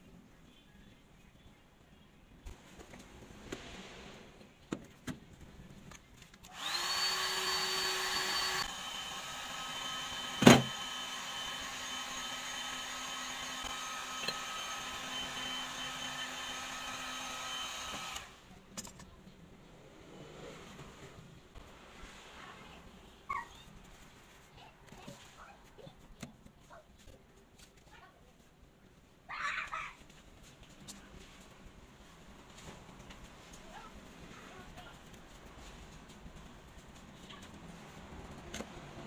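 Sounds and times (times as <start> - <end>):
heat gun fan running: 6.5 - 18.4.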